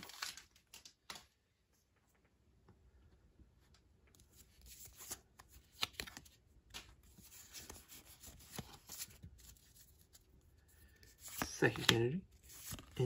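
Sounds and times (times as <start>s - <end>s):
trading cards rustling: 4.2s - 13.0s.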